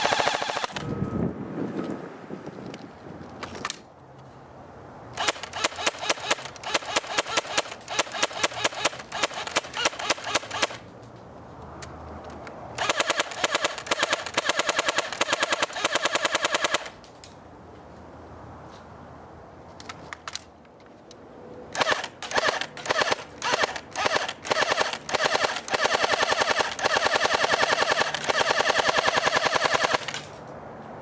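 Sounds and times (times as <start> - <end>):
airsoft gun rapid firing: 0.0 - 0.8, 5.2 - 10.8, 12.8 - 16.9, 21.8 - 30.2.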